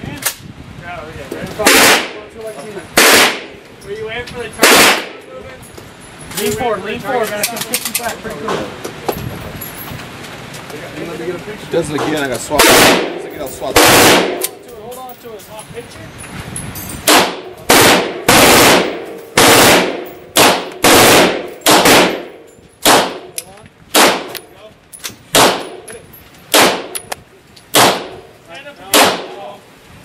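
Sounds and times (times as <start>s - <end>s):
pistol shots with echo: 1.6s - 2.2s, 3.0s - 3.5s, 4.6s - 5.2s, 12.6s - 14.6s, 17.1s - 24.5s, 25.3s - 25.9s, 26.5s - 27.0s, 27.7s - 28.3s, 28.9s - 29.4s.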